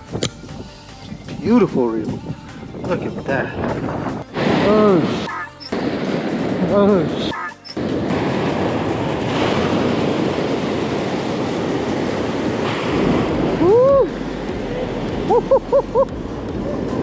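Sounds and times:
wind buffeting microphone: 0.0 - 17.0
surf churning over rocks: 3.6 - 17.0.

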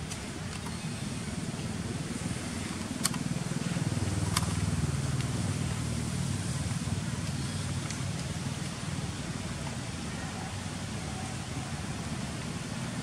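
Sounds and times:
sharp clicks: 0.0 - 0.8, 2.8 - 3.3
vehicle engine rumble: 0.0 - 13.0.

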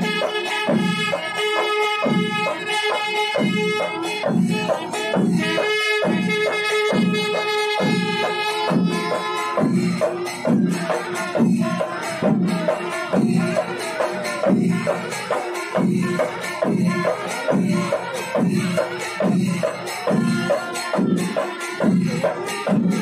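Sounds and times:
metal cymbals clashing: 0.1 - 23.0
drums beating slow pulse: 3.3 - 23.0.

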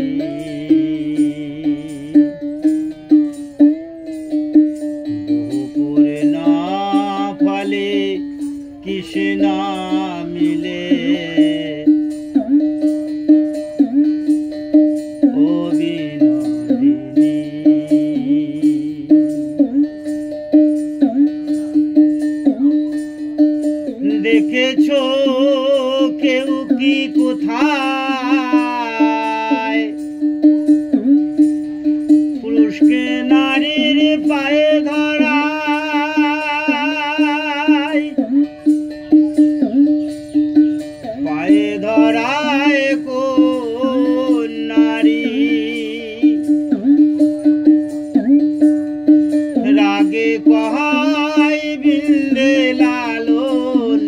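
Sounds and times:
held drone note: 0.0 - 19.9
plucked-string tune: 0.0 - 54.0
steady beat: 0.0 - 54.0.

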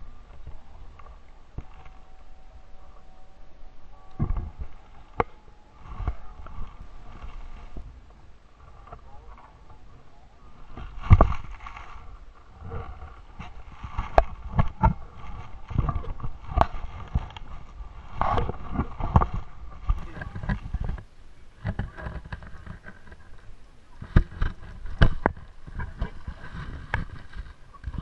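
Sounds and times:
faint muffled voices: 0.0 - 28.0.

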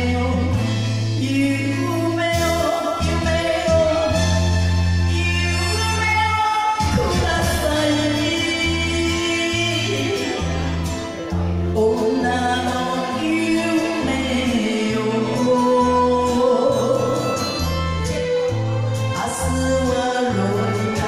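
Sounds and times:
woman singing into a microphone: 0.0 - 10.8, 11.6 - 21.0
karaoke backing track: 0.0 - 21.0.

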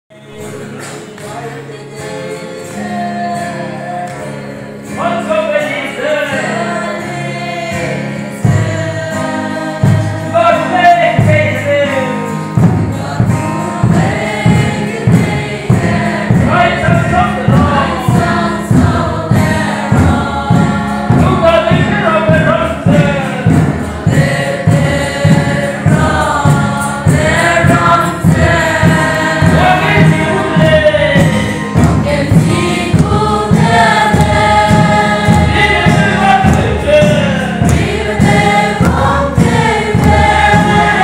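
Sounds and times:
congregation singing a hymn: 0.1 - 41.0
steady low beat: 12.6 - 41.0.

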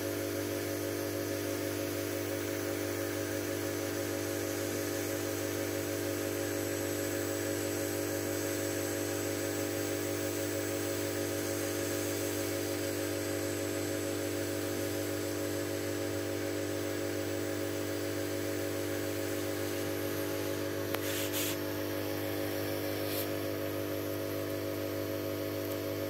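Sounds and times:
electrical hum and pump hiss: 0.0 - 26.0
short hissing bursts: 20.9 - 21.7, 22.9 - 23.4.

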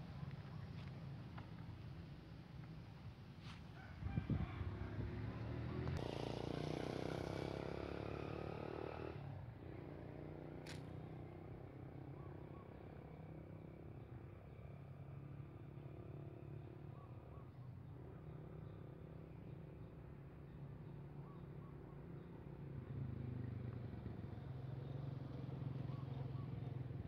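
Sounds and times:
sharp click: 10.6 - 10.9.

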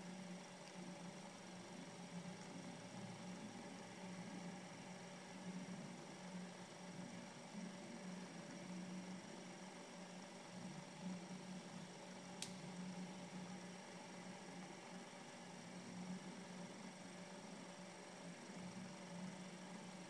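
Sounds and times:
low electrical hum: 0.0 - 20.0
sharp click: 12.4 - 12.6.

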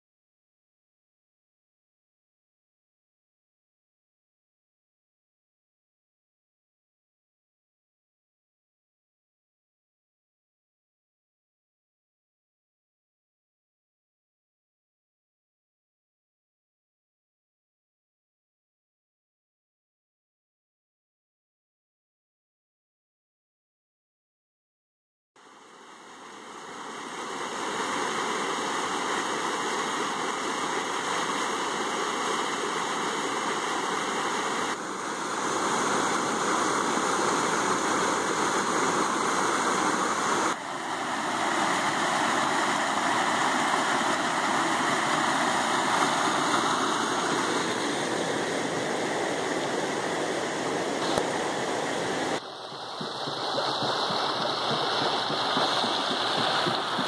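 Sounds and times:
water rushing over a dam: 25.4 - 57.0.

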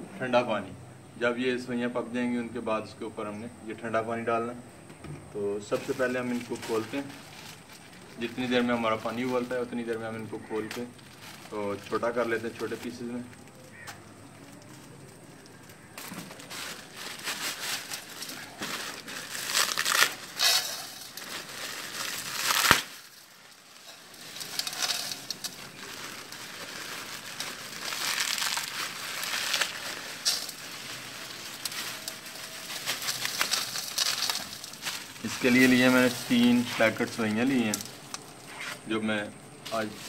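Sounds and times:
plastic packets crinkling: 5.6 - 40.0
dry noodles snapping: 17.1 - 38.4.

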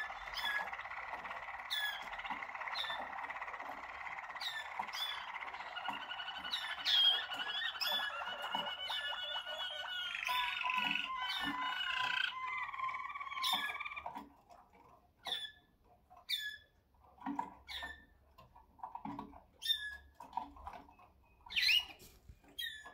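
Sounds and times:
canaries singing trilled song: 0.0 - 14.2, 21.4 - 22.0.

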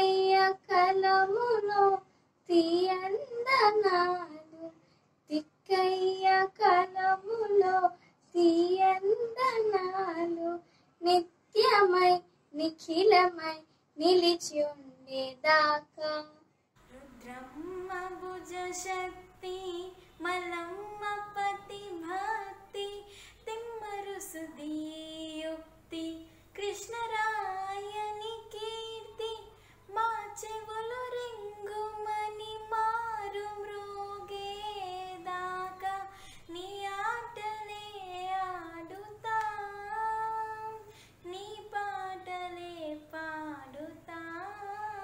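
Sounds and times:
girl singing unaccompanied: 0.0 - 45.0
short breaths: 4.8 - 5.2, 10.6 - 11.0, 23.0 - 23.5, 29.5 - 29.9, 36.1 - 36.5, 40.8 - 41.2.

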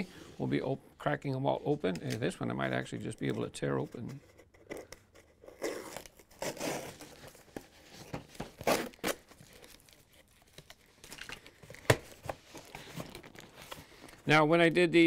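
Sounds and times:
cardboard crinkling: 3.8 - 14.2
packing tape ripping: 5.4 - 7.6, 8.4 - 12.2.

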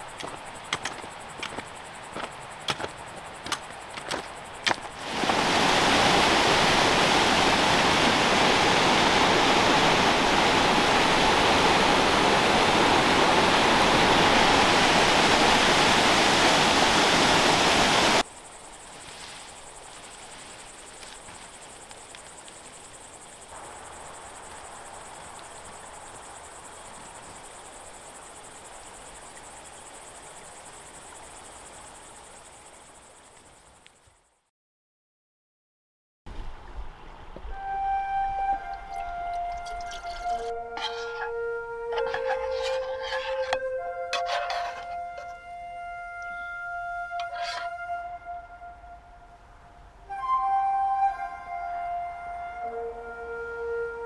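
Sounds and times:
crickets chirring: 0.0 - 34.5, 37.2 - 54.0
waterfall rushing: 5.0 - 18.2.

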